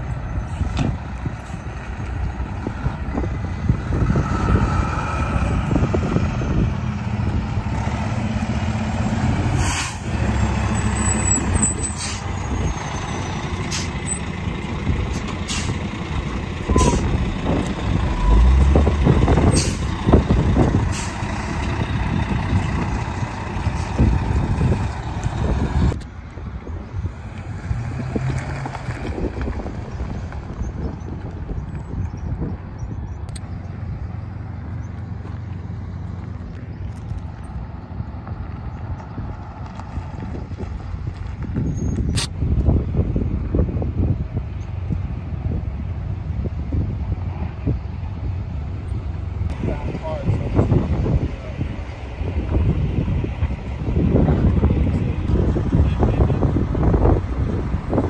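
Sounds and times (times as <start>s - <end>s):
fire engine diesel running: 0.0s - 27.7s, 29.1s - 58.0s
air brake hisses: 9.6s - 10.1s.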